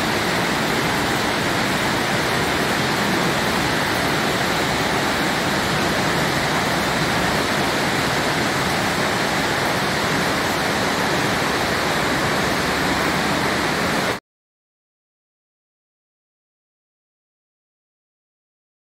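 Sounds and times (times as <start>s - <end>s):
waterfall rushing: 0.0s - 14.2s.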